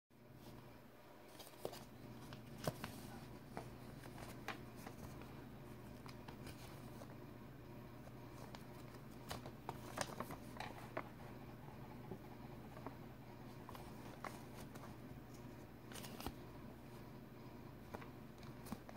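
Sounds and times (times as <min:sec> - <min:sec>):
faint low hum: 0:00.2 - 0:18.9
paper crinkling and tapping: 0:01.3 - 0:07.1, 0:08.3 - 0:11.4, 0:12.0 - 0:16.4, 0:17.8 - 0:18.9.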